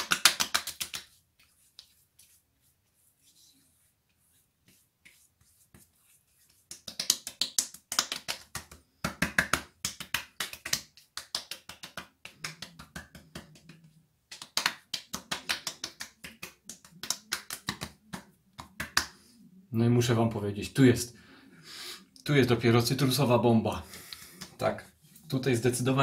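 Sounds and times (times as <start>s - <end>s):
hands patting wet skin: 0.0s - 19.2s.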